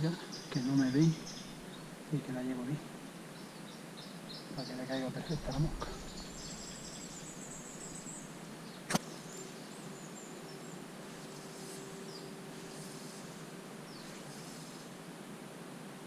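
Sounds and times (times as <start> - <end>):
faint steady hum: 0.0 - 16.0
high bird chirps: 3.4 - 8.3.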